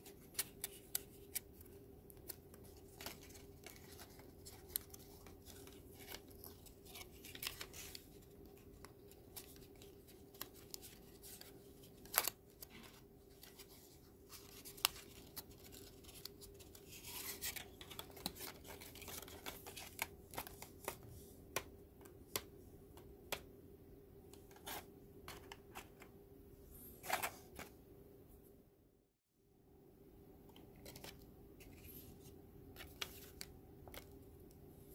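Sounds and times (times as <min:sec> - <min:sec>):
card rustling: 0:00.0 - 0:22.6, 0:27.0 - 0:27.8
faint steady hum: 0:00.0 - 0:34.9.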